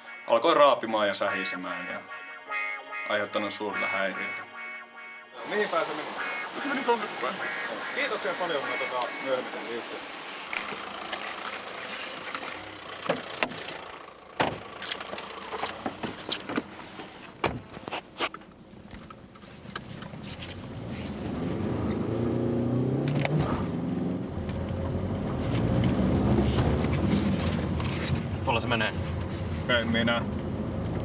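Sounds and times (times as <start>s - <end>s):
car engine running: 6.0s - 17.8s
clicks and knocks inside car: 14.4s - 20.2s.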